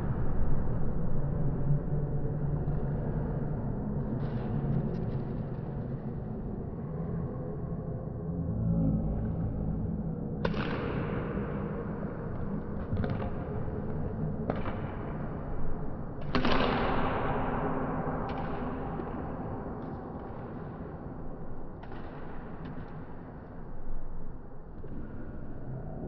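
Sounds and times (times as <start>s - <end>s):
sharp impacts echoing in a hall: 9.2s - 26.0s.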